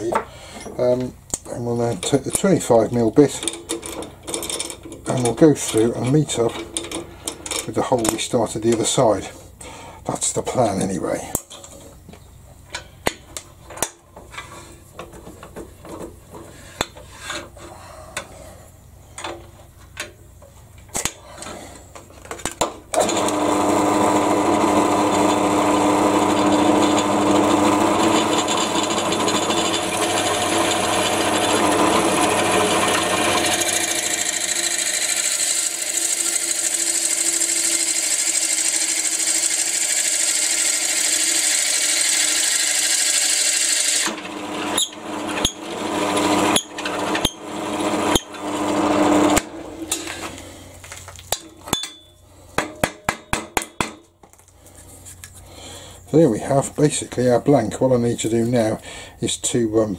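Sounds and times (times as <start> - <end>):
pillar drill boring into wood: 22.9 - 50.4.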